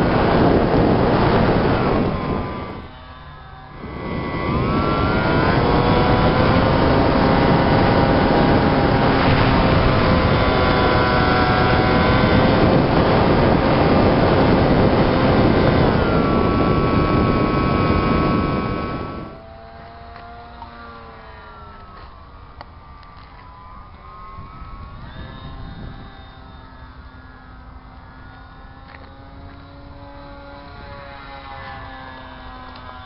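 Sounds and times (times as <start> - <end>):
wind rush: 0.0 - 19.8, 24.2 - 27.4
model plane motor whine: 0.0 - 33.0.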